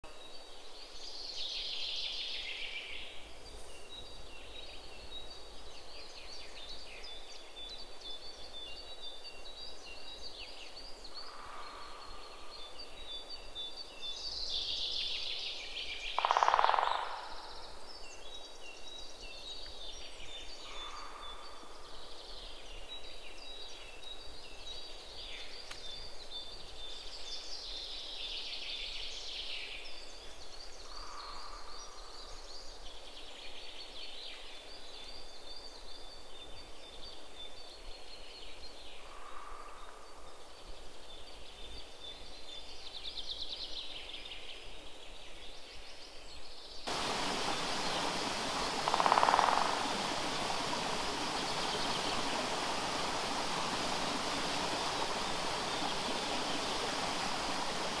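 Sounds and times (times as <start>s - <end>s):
birds chirping and trilling: 46.9s - 58.0s
short lower bird call: 46.9s - 58.0s.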